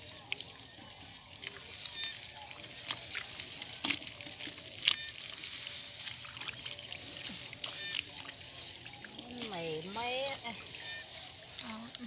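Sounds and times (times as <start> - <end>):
water trickling: 0.0 - 12.0
hands splashing in muddy water: 1.4 - 9.6.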